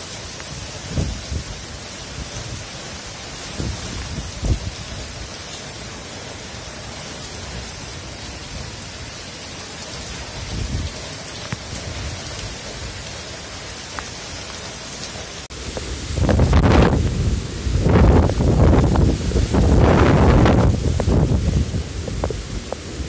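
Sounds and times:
heavy rain hissing: 0.0s - 23.0s
wind rumbling on microphone: 0.2s - 5.4s, 10.1s - 13.2s, 15.5s - 23.0s.

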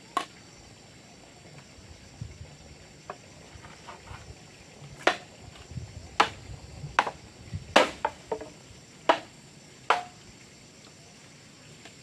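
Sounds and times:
wooden club knocking bamboo pole: 5.0s - 5.2s, 7.0s - 7.2s, 7.8s - 9.3s, 9.9s - 10.2s
light taps on bamboo: 5.0s - 5.3s, 6.2s - 6.4s, 7.0s - 9.3s, 9.9s - 10.2s.

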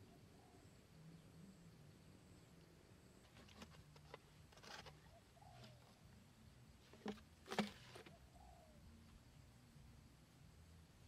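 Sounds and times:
sticks scraping in soil: 3.3s - 5.8s.

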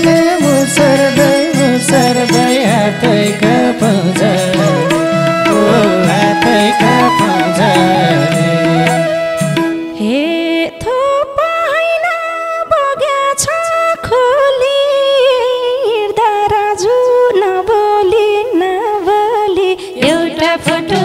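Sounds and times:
woman singing folk melody: 10.0s - 21.0s.

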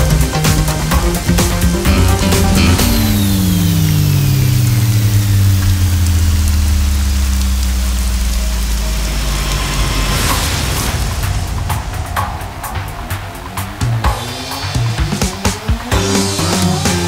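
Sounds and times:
rain falling: 0.0s - 17.0s
low hum: 1.8s - 14.0s.

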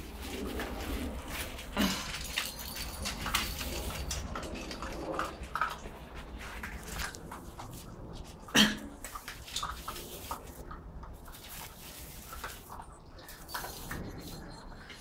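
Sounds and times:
puppies chewing kibble: 0.0s - 15.0s.

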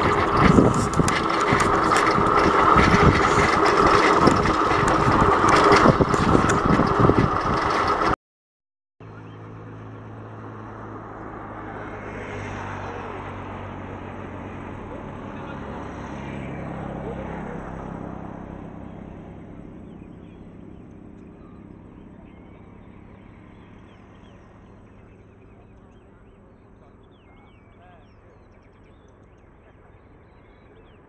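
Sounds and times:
steady low hum: 0.0s - 8.1s
wind buffeting microphone: 0.0s - 8.2s.

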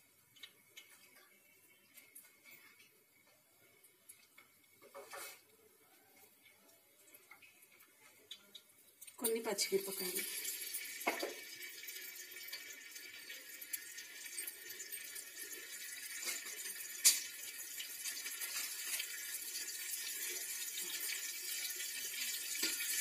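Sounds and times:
spices sizzling in hot oil: 6.0s - 23.0s.

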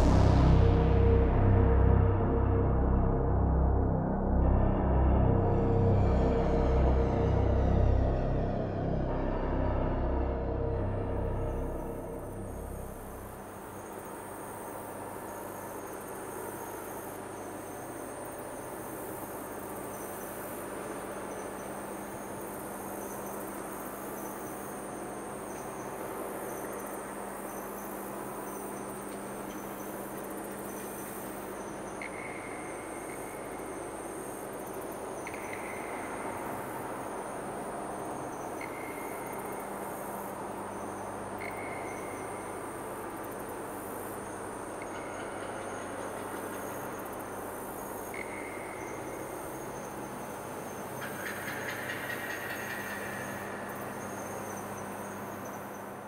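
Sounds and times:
low hum: 0.0s - 13.5s
insects chirring: 12.3s - 56.0s.

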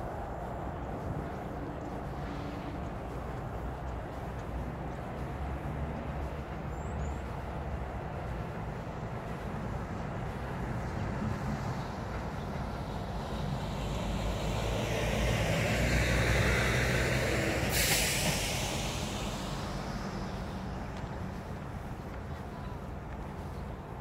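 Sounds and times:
vehicle passing by: 0.0s - 23.0s
short hiss: 17.7s - 20.0s.

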